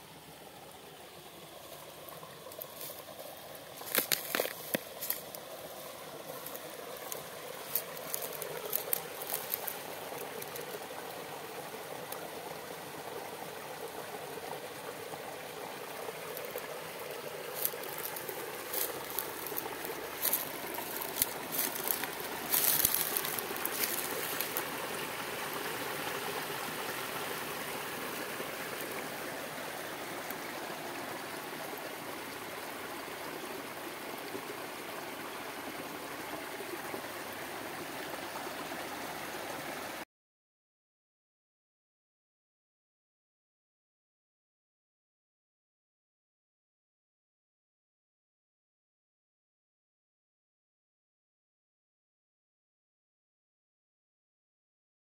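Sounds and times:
water trickling over branches: 0:00.0 - 0:40.0
sharp crackles and snaps: 0:03.8 - 0:05.4.

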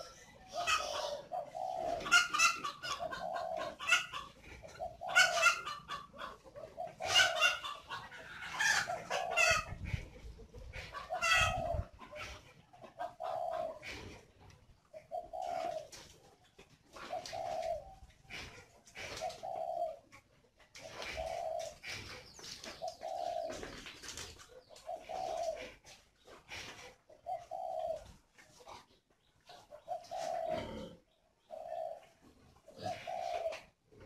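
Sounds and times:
doves cooing: 0:00.0 - 0:34.0.

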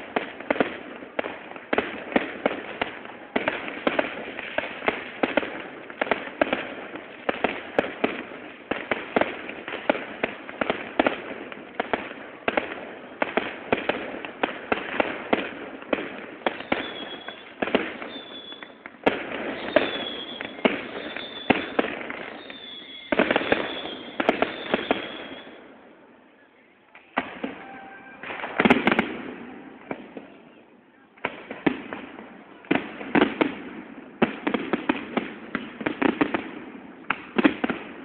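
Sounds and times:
fireworks whistling: 0:00.0 - 0:25.7, 0:26.6 - 0:32.2
fireworks bangs and pops: 0:00.0 - 0:26.1, 0:26.8 - 0:38.0
fireworks crackling: 0:00.0 - 0:38.0.

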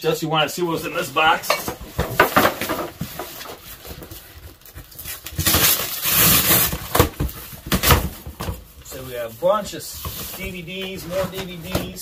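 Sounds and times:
cardboard boxes being handled: 0:00.7 - 0:12.0
taped cardboard tearing: 0:05.1 - 0:07.1.

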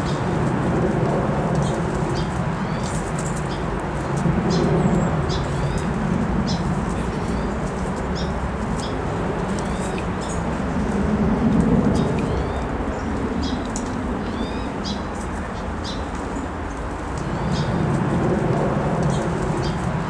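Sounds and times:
steady low rumble: 0:00.0 - 0:20.0.

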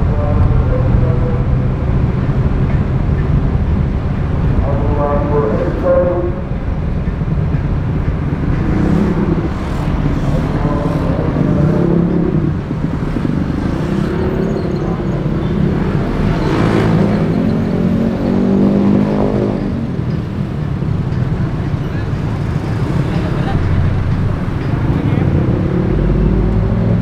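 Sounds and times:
vehicle passing close: 0:00.0 - 0:21.0
road traffic rumble: 0:00.0 - 0:27.0.

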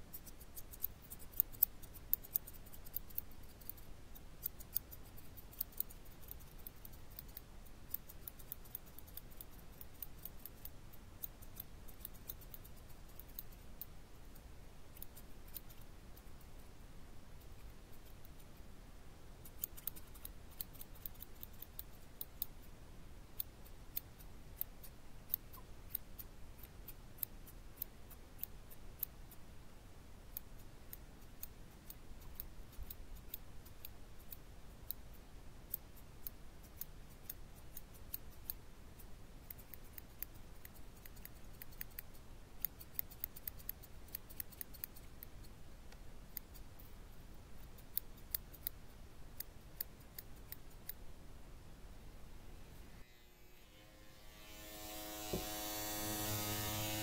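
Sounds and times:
scissors snipping hair: 0:00.1 - 0:16.4, 0:19.4 - 0:22.6, 0:30.3 - 0:38.6, 0:39.4 - 0:45.5, 0:47.6 - 0:51.0.

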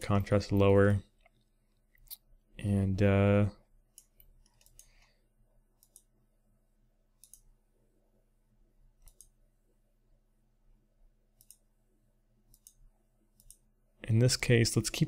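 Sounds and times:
computer mouse clicks: 0:03.9 - 0:05.1, 0:05.8 - 0:06.1, 0:07.2 - 0:07.5, 0:09.0 - 0:09.4, 0:11.4 - 0:11.7, 0:12.5 - 0:12.8, 0:13.4 - 0:13.7.

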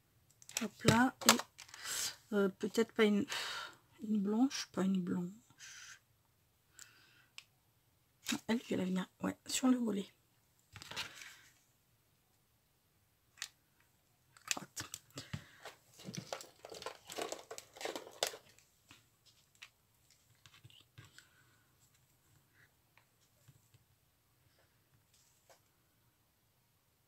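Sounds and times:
crackly clicks: 0:00.2 - 0:01.8, 0:14.3 - 0:15.3
plastic packets crinkling: 0:00.4 - 0:01.9, 0:14.3 - 0:18.7.

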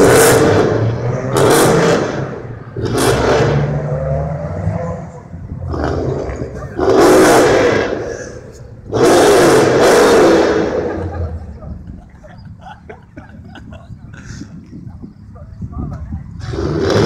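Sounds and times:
car engine revving: 0:00.0 - 0:11.6, 0:16.3 - 0:17.0.

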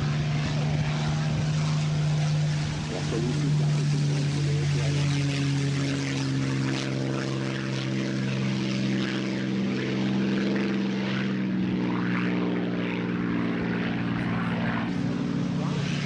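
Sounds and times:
propeller aircraft engine drone: 0:00.0 - 0:16.0.

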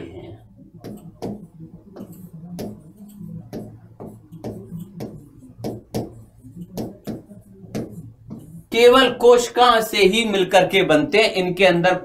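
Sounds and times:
low steady hum: 0:00.0 - 0:11.4
marker scratching on whiteboard: 0:00.7 - 0:09.4.

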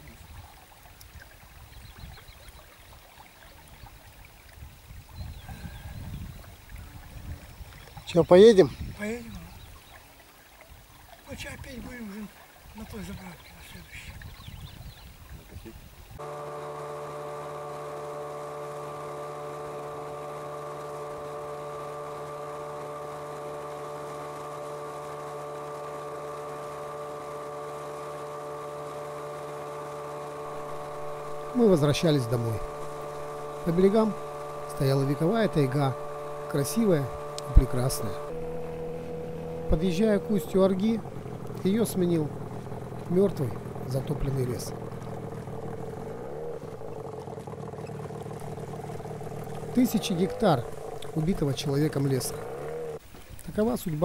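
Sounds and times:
outboard motor droning: 0:00.0 - 0:54.0
river water rushing: 0:16.2 - 0:54.0.

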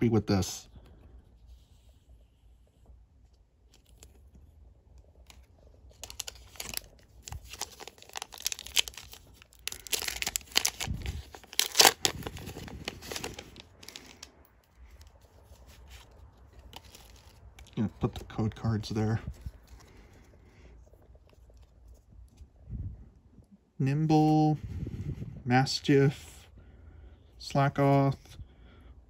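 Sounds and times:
foil wrapper tearing and crinkling: 0:05.2 - 0:18.2.

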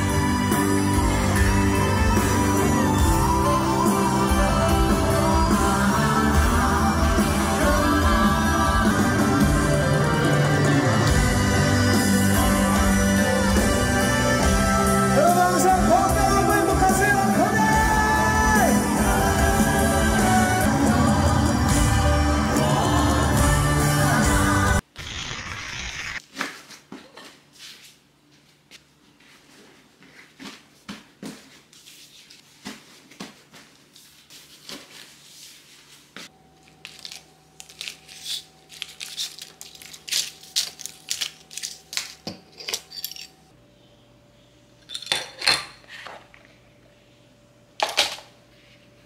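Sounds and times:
loud concert music: 0:00.0 - 0:24.8
plastic packets clicking and crinkling: 0:36.8 - 0:43.0.

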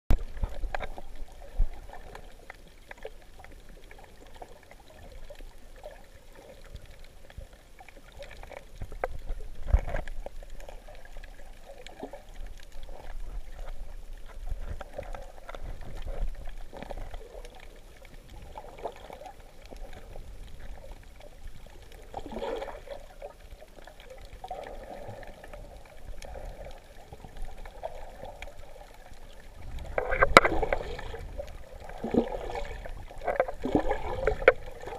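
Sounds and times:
water sloshing underwater: 0:00.1 - 0:34.9.

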